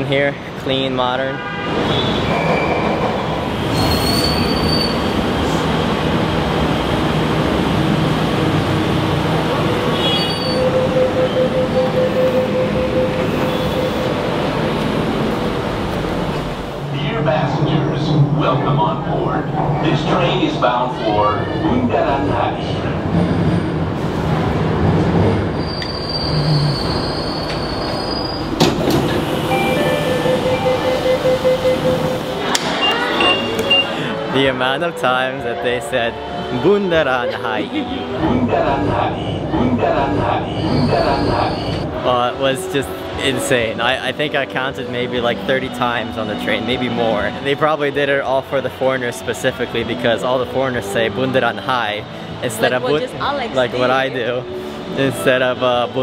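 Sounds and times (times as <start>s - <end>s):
metro train rumbling: 0.0s - 56.0s
wheel squeal: 1.9s - 3.0s, 3.6s - 5.6s, 9.9s - 14.1s, 25.6s - 28.7s, 40.5s - 41.8s
train stopping clunk: 2.0s - 5.7s, 9.5s - 16.7s, 23.1s - 34.3s
electronic door tone: 10.2s - 14.3s, 29.1s - 34.0s.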